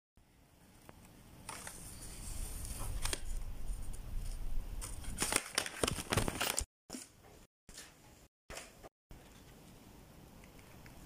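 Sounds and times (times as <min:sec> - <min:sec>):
paper puppet crinkling and clicking: 0:04.8 - 0:06.7.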